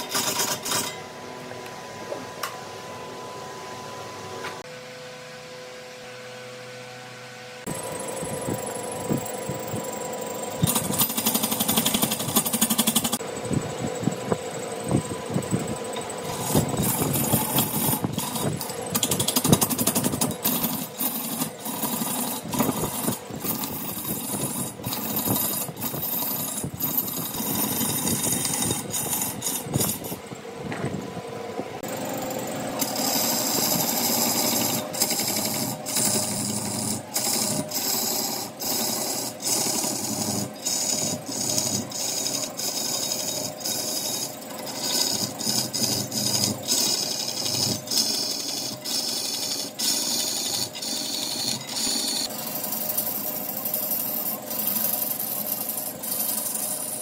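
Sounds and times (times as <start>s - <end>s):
turning tool scraping wood: 0.0s - 1.0s, 8.5s - 13.2s, 15.4s - 30.9s, 31.8s - 57.0s
wood lathe knocking: 10.6s - 13.2s, 16.0s - 31.0s, 31.8s - 57.0s.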